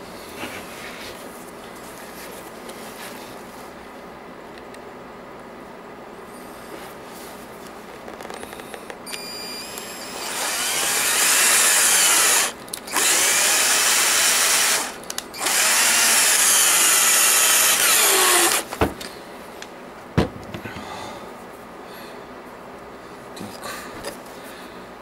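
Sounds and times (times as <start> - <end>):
cordless drill driving screws: 9.1 - 18.7.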